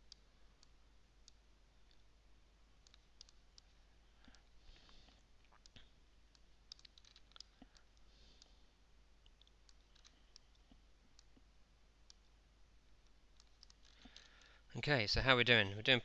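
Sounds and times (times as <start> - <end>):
low steady hum: 0.0 - 16.0
computer mouse clicks: 2.8 - 4.9, 5.5 - 8.6, 9.3 - 11.4, 13.0 - 14.5.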